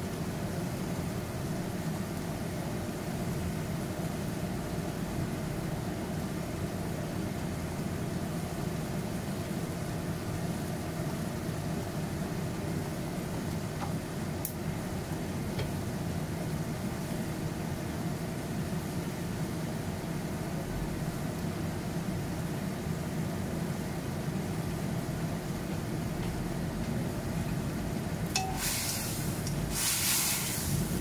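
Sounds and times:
okra hissing in a wok: 0:28.3 - 0:31.0.

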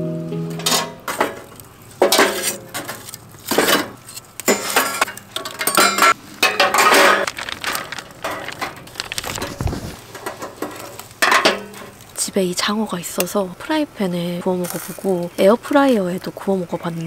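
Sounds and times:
wire grate set on grill: 0:00.7 - 0:12.1.

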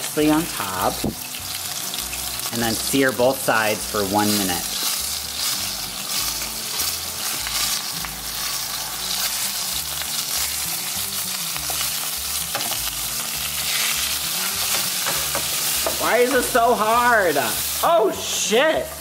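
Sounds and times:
steak sizzling in pan: 0:00.0 - 0:19.0
metal tongs in pan: 0:11.6 - 0:17.8.

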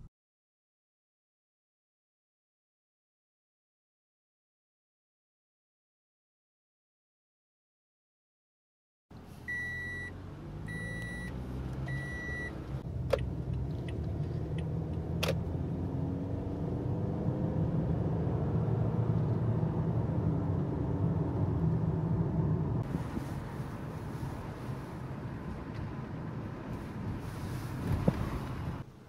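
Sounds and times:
engine and road noise: 0:09.1 - 0:29.0.

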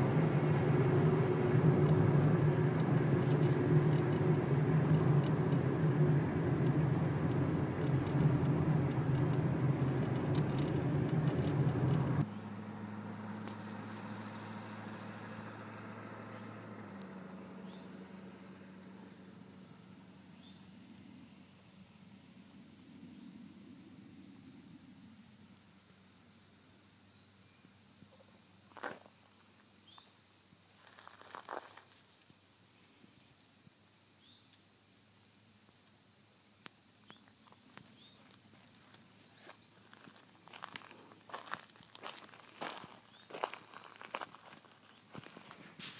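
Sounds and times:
low hum: 0:00.0 - 0:19.4
insects singing: 0:01.9 - 0:45.9.

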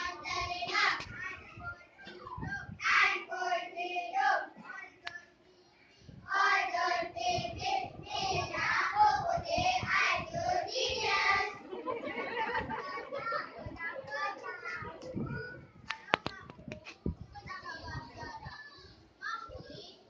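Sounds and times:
children singing in unison: 0:00.0 - 0:01.1, 0:06.3 - 0:11.6.

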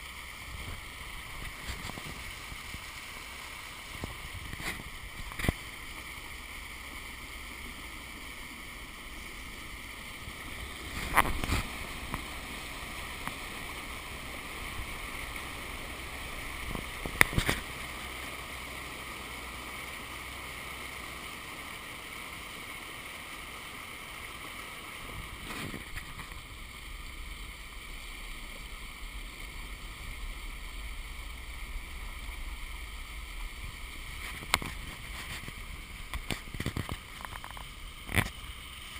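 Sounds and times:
truck sloshing through floodwater: 0:07.1 - 0:23.0.

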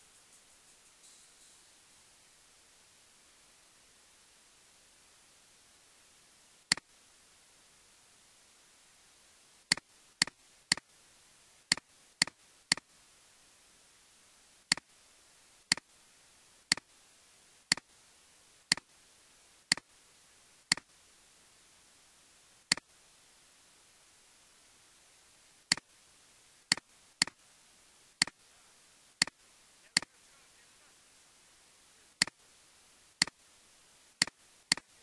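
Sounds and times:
faint steady hiss: 0:00.0 - 0:35.0
computer mouse button clicking: 0:34.2 - 0:34.9.

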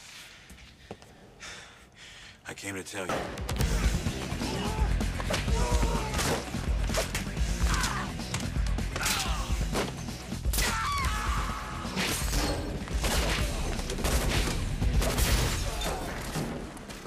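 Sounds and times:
film music score: 0:03.0 - 0:17.0
gunshots: 0:12.0 - 0:16.7.

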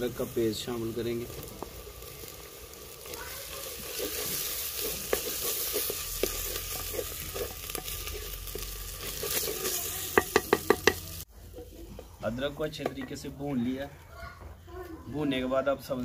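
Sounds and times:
food sizzling in a pot: 0:00.0 - 0:13.8
wooden spoon scraping pot: 0:03.4 - 0:13.4
spoon knocking against pot: 0:10.1 - 0:11.1.

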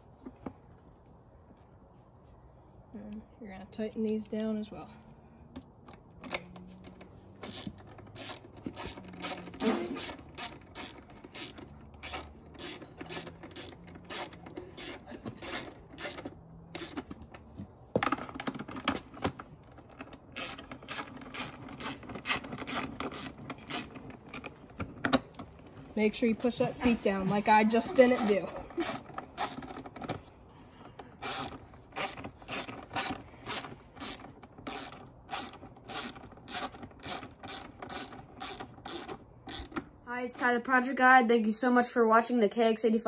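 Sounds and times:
ratchet clicking: 0:06.3 - 0:17.1, 0:20.3 - 0:24.6, 0:28.0 - 0:29.9, 0:31.2 - 0:39.9.

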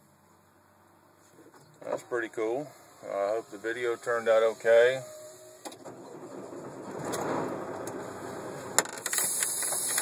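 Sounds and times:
truck cab rushing noise: 0:01.9 - 0:10.0
steady hiss: 0:02.0 - 0:05.8, 0:08.0 - 0:10.0.

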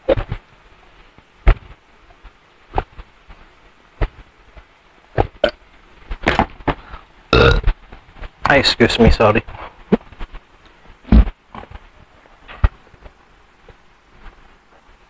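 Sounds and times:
man gulping water: 0:05.2 - 0:05.6, 0:07.3 - 0:07.7.

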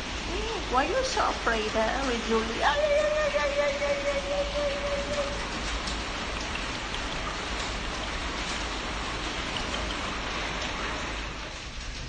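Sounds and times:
faint ticks: 0:05.7 - 0:07.8.

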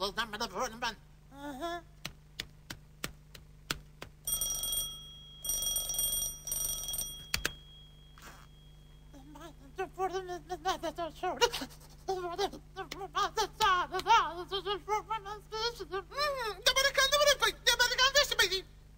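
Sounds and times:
electric doorbell ringing: 0:04.3 - 0:09.0.

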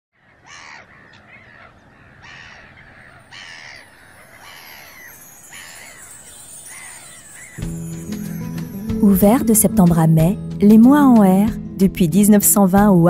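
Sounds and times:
seagulls calling: 0:00.2 - 0:09.7.

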